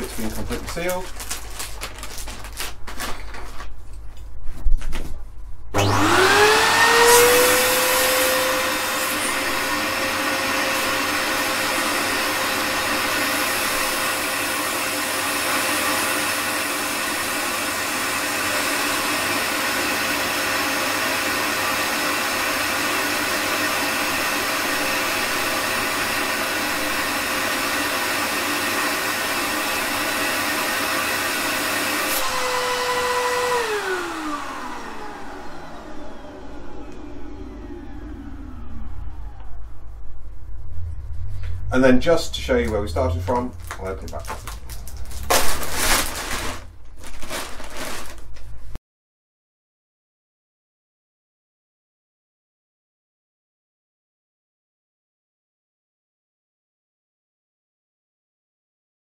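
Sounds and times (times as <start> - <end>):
vacuum cleaner motor whine: 5.7 - 46.7.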